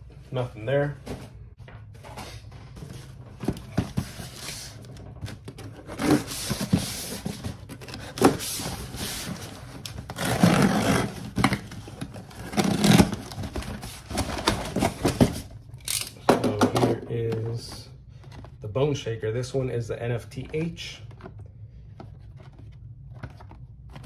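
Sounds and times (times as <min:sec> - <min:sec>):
cardboard flaps scraping: 0:02.9 - 0:15.5.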